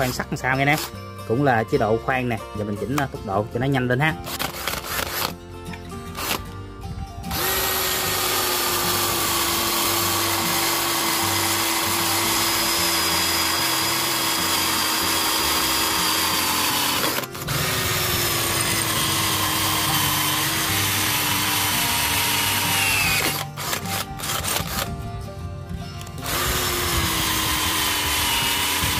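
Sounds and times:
cordless drill boring into steel: 0:00.0 - 0:00.9, 0:04.2 - 0:05.3, 0:06.1 - 0:06.4, 0:07.3 - 0:24.9, 0:26.1 - 0:28.9.

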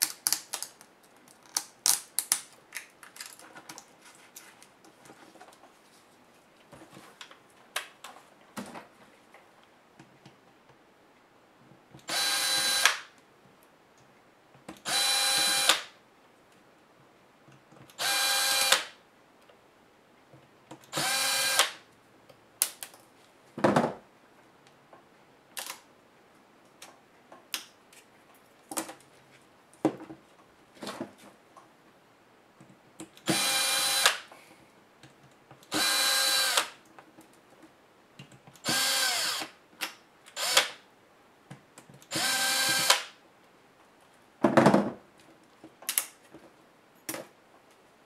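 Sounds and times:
electric screwdriver whining: 0:12.1 - 0:12.9, 0:14.9 - 0:15.8, 0:18.0 - 0:18.8, 0:20.9 - 0:21.7, 0:33.3 - 0:34.1, 0:35.7 - 0:36.7, 0:38.6 - 0:39.5, 0:40.4 - 0:40.8, 0:42.1 - 0:43.0.

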